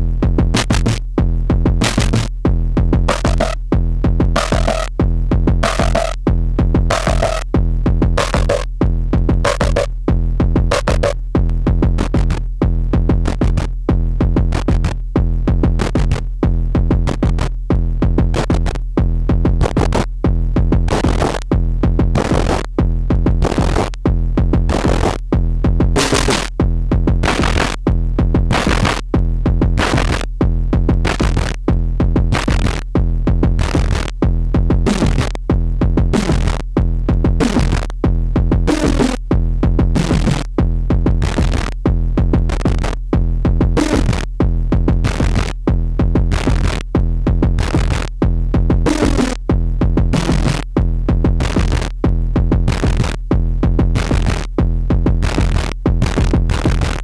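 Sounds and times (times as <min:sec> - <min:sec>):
electronic pulses: 0:06.8 - 0:07.4.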